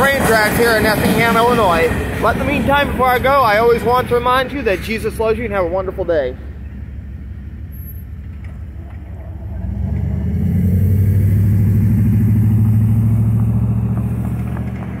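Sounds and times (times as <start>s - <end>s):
truck engine accelerating: 0.0s - 15.0s.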